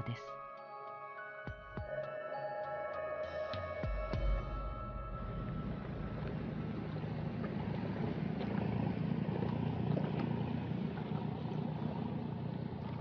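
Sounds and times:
boat engine rumbling: 0:04.1 - 0:13.0.

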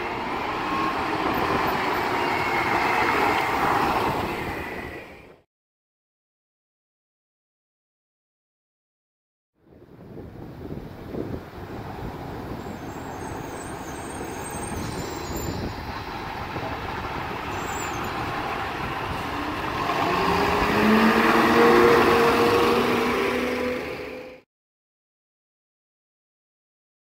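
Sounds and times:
tyres on the road: 0:00.0 - 0:05.4, 0:09.7 - 0:24.4.

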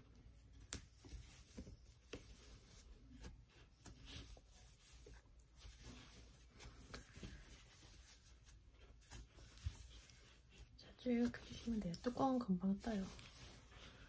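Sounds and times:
crochet hook rustling and clicking: 0:11.2 - 0:12.3.

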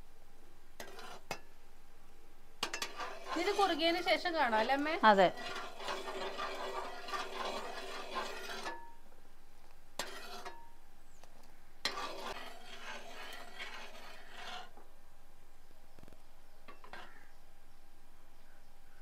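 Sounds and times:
spoon scraping a pan: 0:00.8 - 0:01.4, 0:02.6 - 0:09.0, 0:10.0 - 0:10.8, 0:11.8 - 0:14.8, 0:16.7 - 0:17.3.

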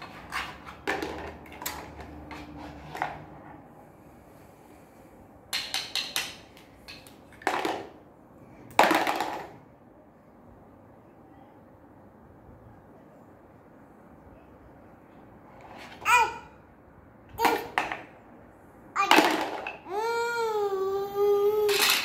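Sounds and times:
plastic toy blocks clacking: 0:00.0 - 0:03.2, 0:05.5 - 0:08.0, 0:08.7 - 0:09.6, 0:19.0 - 0:19.8, 0:21.5 - 0:22.0.

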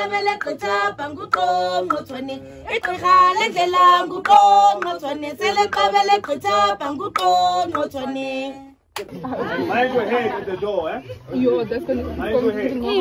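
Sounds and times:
person singing unaccompanied: 0:00.0 - 0:08.8.

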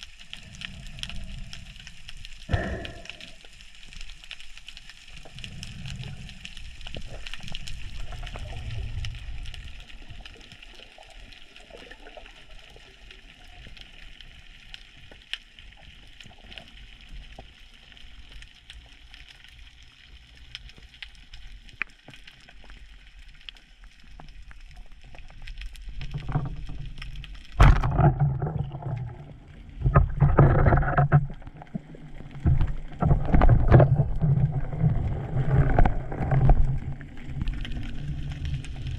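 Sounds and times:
underwater hiss: 0:00.0 - 0:04.1, 0:05.0 - 0:10.1
muffled water rushing: 0:00.0 - 0:15.8, 0:24.1 - 0:38.9
crackling clicks: 0:00.0 - 0:38.9.

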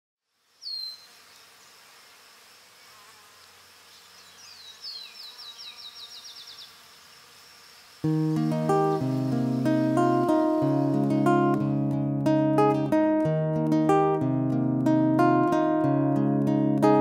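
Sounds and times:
high-pitched insect buzzing: 0:00.3 - 0:11.8.

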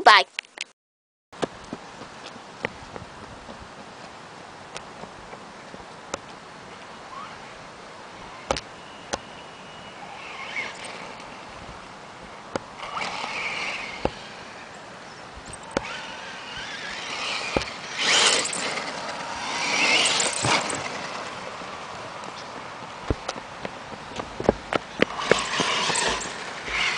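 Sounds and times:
toy car driving over gravel: 0:10.0 - 0:11.5, 0:12.8 - 0:14.7, 0:15.5 - 0:23.4, 0:24.2 - 0:26.9
tyres on gravel: 0:10.1 - 0:26.9.

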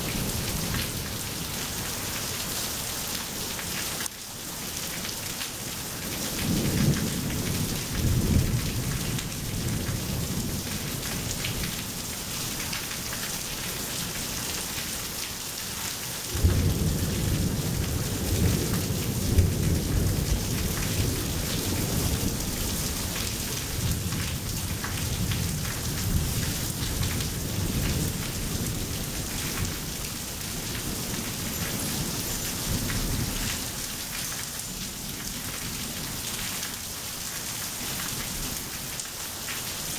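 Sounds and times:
steady rain: 0:00.0 - 0:39.9
thunder rumbling: 0:16.3 - 0:30.0.

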